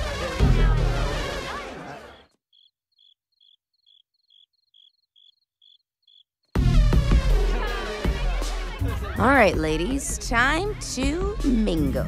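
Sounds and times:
cricket chirping: 2.5 - 6.4.

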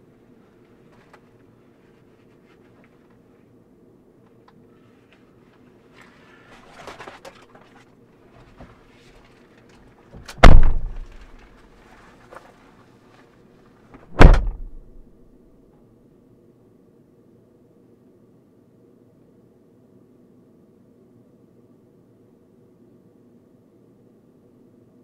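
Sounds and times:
shuffling and rustling: 0.1 - 3.6, 4.7 - 15.1
car doors slamming: 10.2 - 11.4, 14.1 - 15.0.

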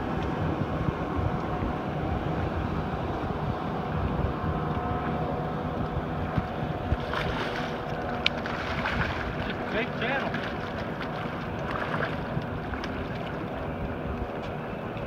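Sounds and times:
boat motor rumble: 0.0 - 15.0
wind on microphone: 0.0 - 15.0
fish splashing at surface: 7.0 - 13.4.

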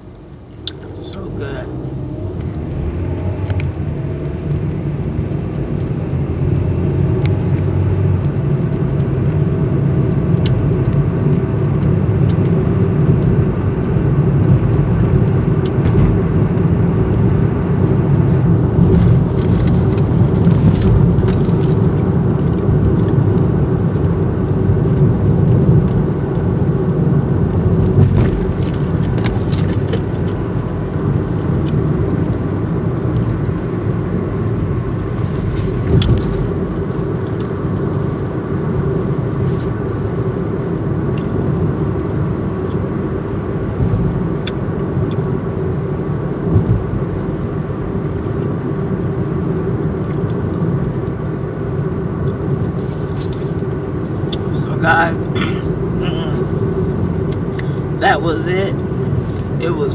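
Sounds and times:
car idling from inside: 0.0 - 5.2, 52.3 - 58.5.

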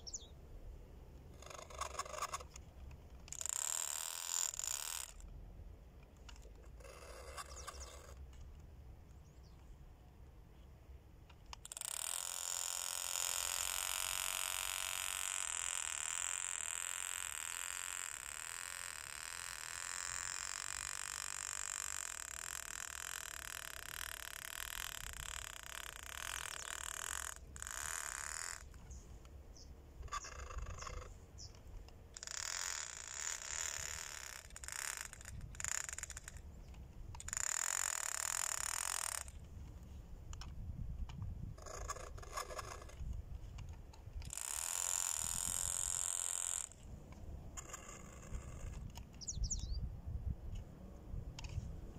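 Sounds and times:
toy boat electric motor whining: 3.2 - 5.3, 6.4 - 8.2, 11.5 - 28.8, 32.2 - 39.4, 43.6 - 46.9, 47.6 - 49.0.

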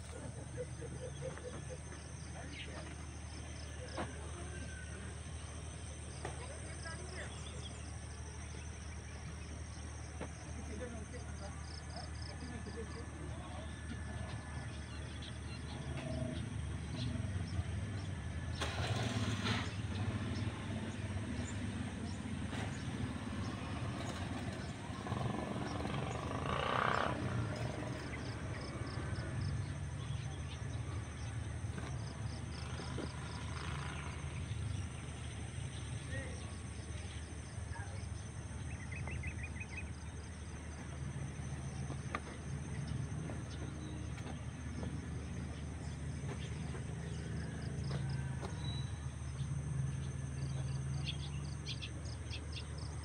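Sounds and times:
low engine rumble: 0.0 - 53.0
insects trilling: 20.0 - 53.0.

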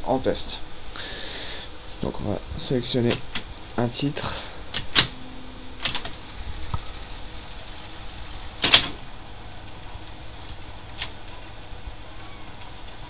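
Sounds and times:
low steady machine hum: 0.0 - 13.0
jukebox mechanism clunk: 5.8 - 9.0.

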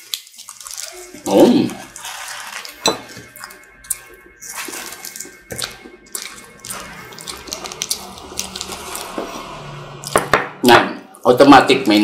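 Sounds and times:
paper wrapper crackling: 0.0 - 2.8
person chewing: 0.0 - 10.2.

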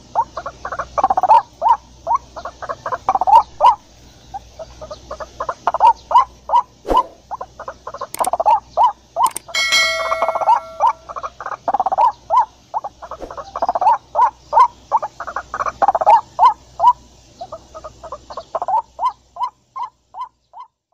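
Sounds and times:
ringing tone: 9.3 - 11.2.

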